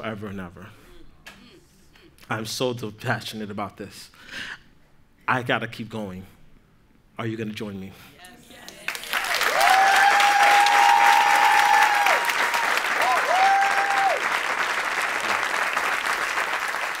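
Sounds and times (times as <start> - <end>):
audience applauding: 8.7 - 17.0
high cheer: 8.8 - 17.0.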